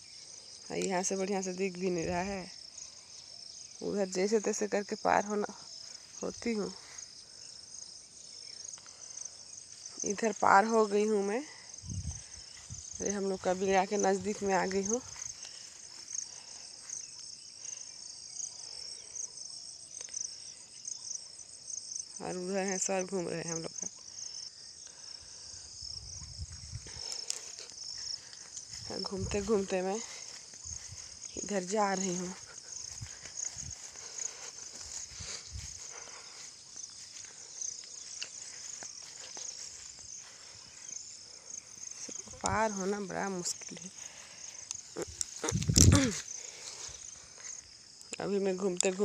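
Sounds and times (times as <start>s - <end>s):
insects chirping shrilly: 0.0s - 48.8s
footsteps through grass and brush: 11.7s - 18.2s, 25.0s - 48.0s.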